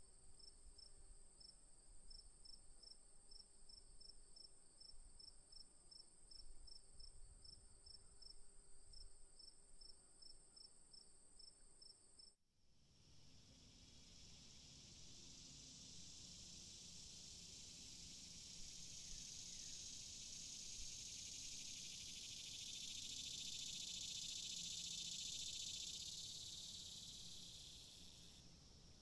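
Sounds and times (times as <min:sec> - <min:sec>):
crickets chirping: 0:12.9 - 0:29.0.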